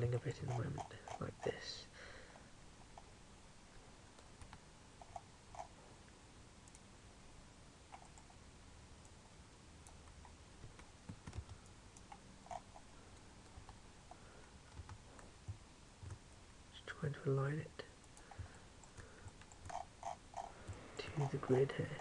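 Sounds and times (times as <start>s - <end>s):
computer mouse and keyboard clicks: 4.2s - 5.7s, 9.8s - 12.8s, 18.0s - 21.3s.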